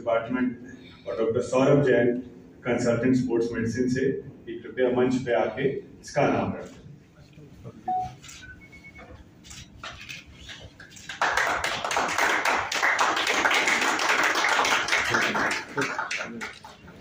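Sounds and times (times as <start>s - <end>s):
people applauding: 9.8s - 17.0s.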